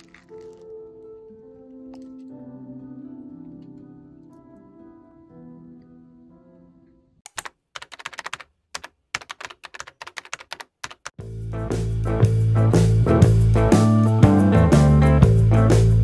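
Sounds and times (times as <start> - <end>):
soft background music: 0.0 - 7.2
keyboard typing clicks: 7.2 - 11.2
music with guitar: 11.3 - 16.0.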